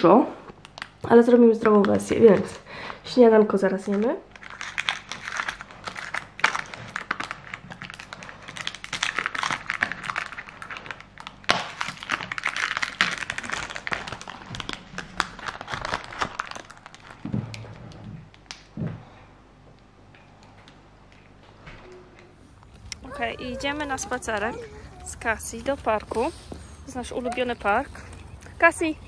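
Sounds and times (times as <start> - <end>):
plastic film crinkling: 3.8 - 18.7, 22.4 - 29.0.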